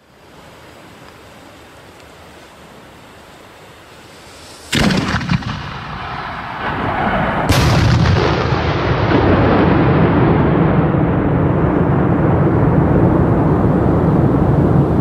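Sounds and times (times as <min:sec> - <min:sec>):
loud rumble: 0:04.4 - 0:15.0
mortar launch thump: 0:04.7 - 0:05.8
firework shell bang: 0:04.7 - 0:06.3.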